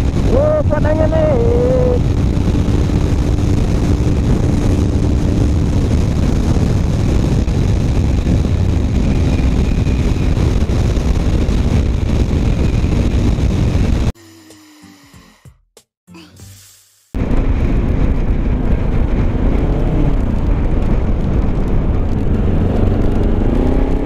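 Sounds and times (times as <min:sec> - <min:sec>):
motorcycle engine running: 0:00.0 - 0:14.1
wind noise on microphone: 0:00.0 - 0:14.2, 0:17.2 - 0:24.0.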